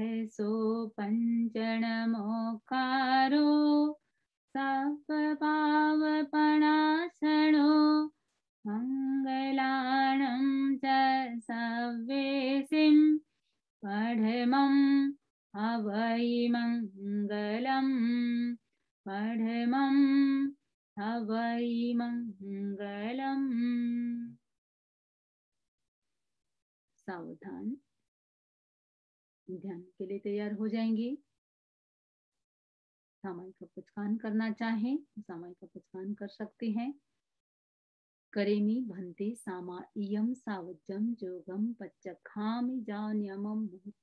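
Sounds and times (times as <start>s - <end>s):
woman chanting a prayer: 33.3s - 37.0s, 38.4s - 44.0s.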